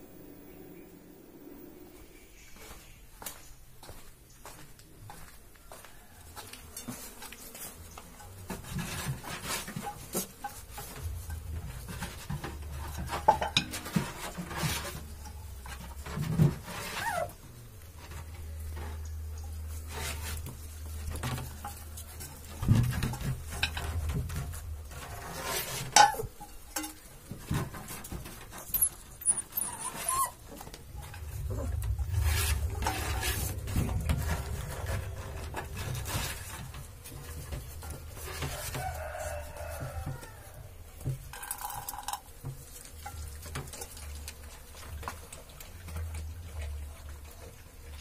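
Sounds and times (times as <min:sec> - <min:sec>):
low handling rumble: 0:00.0 - 0:02.4, 0:10.9 - 0:16.7, 0:17.3 - 0:25.4, 0:29.6 - 0:39.4
metal dishes clinking: 0:09.8 - 0:15.5
puppies whimpering: 0:28.6 - 0:30.8.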